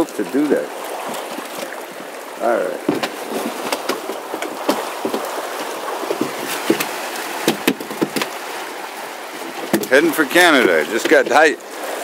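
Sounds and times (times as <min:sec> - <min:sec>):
fast river water rushing: 0:00.0 - 0:12.0
sharp knocks on wood: 0:02.8 - 0:05.3, 0:06.1 - 0:08.3
fish flopping in wooden box: 0:02.8 - 0:08.6, 0:09.4 - 0:10.0.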